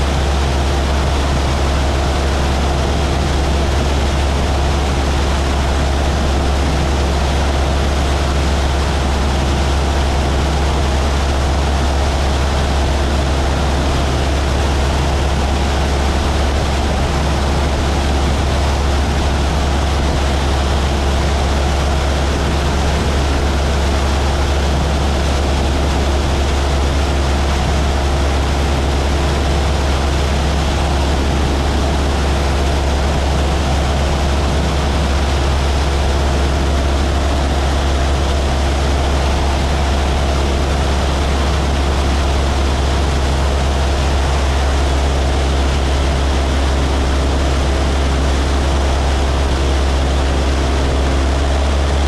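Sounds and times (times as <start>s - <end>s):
propeller airplane engine drone: 0.0s - 52.0s.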